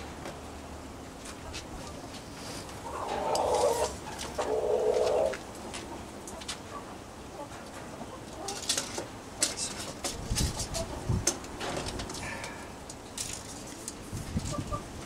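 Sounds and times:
dove cooing: 2.8s - 5.4s.

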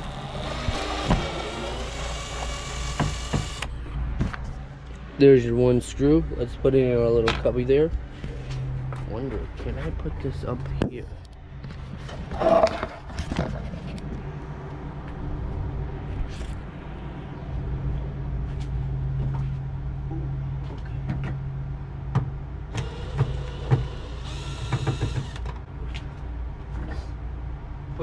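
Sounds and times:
cordless drill whining: 0.0s - 3.7s, 22.8s - 25.5s.

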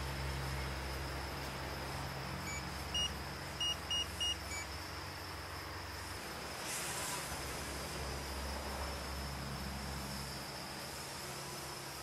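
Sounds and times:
steady low hum: 0.0s - 12.0s
short electronic beeps: 2.4s - 4.7s.

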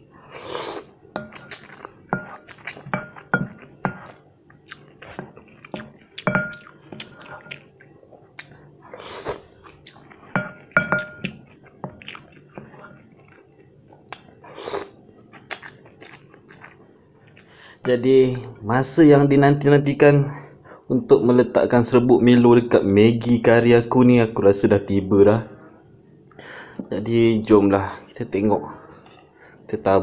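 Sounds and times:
slurping noodles: 0.2s - 0.9s
chewing: 0.6s - 17.5s
utensils clinking on glass bowl: 6.2s - 7.6s, 10.3s - 11.6s.

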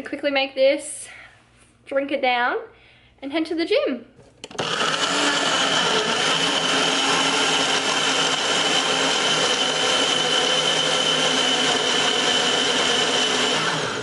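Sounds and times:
blender motor whirring: 4.4s - 14.0s.

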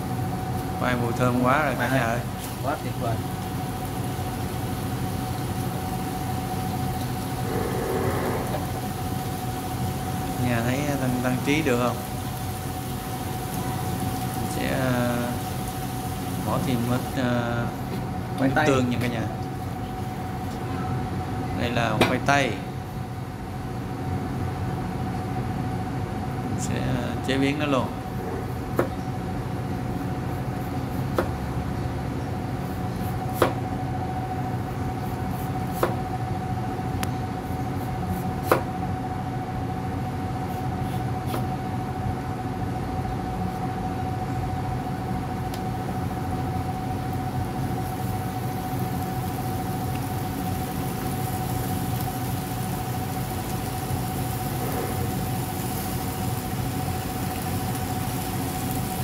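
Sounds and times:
frying hiss: 0.0s - 20.6s, 45.5s - 59.0s
steady hum: 0.0s - 59.0s
knife chopping on wooden board: 31.1s - 31.4s, 33.0s - 33.6s, 35.3s - 36.0s, 38.1s - 38.7s, 40.8s - 41.5s.

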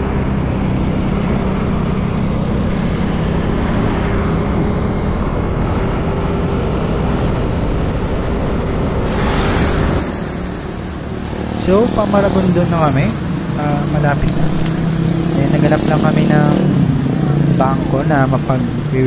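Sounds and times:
wind rushing over microphone: 0.0s - 19.0s
scooter engine running: 9.1s - 19.0s.

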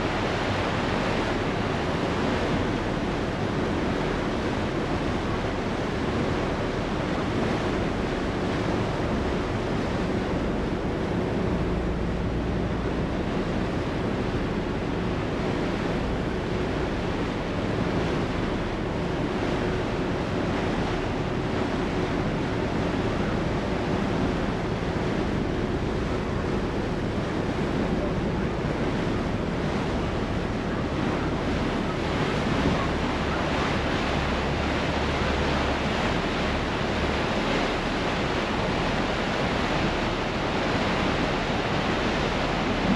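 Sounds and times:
ferry engine hum: 0.0s - 42.9s
rush of churned water: 0.0s - 42.9s
wind buffeting microphone: 0.0s - 42.9s.

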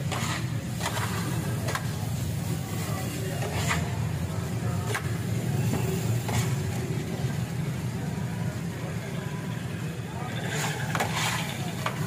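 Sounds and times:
metal scrapers on steel griddle: 0.0s - 4.2s, 10.4s - 12.0s.

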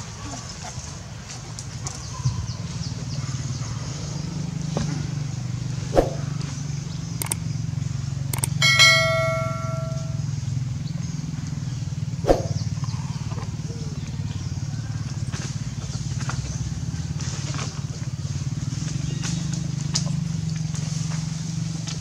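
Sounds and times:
steady low hum: 5.4s - 10.4s
ringing metallic clang: 8.4s - 10.2s.

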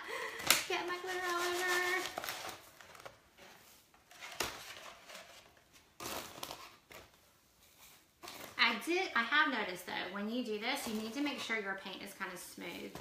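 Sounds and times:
glitter rustling and scraping: 1.0s - 2.8s.

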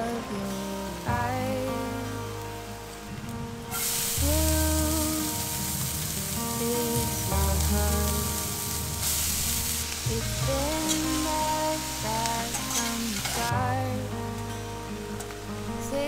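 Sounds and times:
background music: 0.0s - 16.0s
food sizzling in a frying pan: 3.7s - 14.1s.

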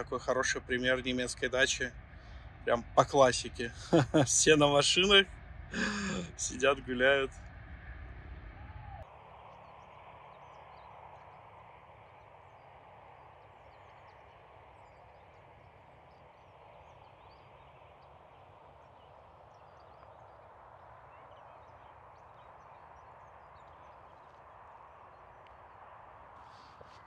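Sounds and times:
low rush of air: 0.7s - 14.6s.

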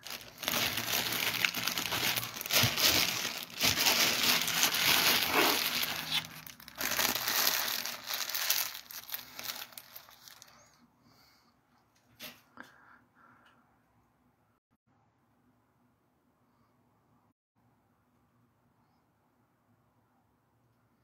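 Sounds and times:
crinkling and rustling: 0.0s - 10.6s.

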